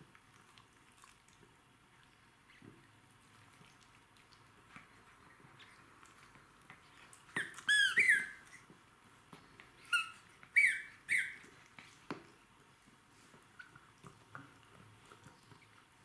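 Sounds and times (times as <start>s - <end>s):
dog toy squeaking: 7.4s - 8.4s, 9.9s - 11.4s.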